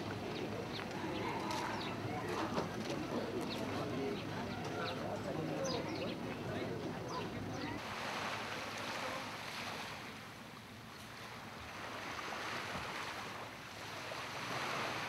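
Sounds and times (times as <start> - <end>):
small waves washing onto sand: 7.8 - 15.0.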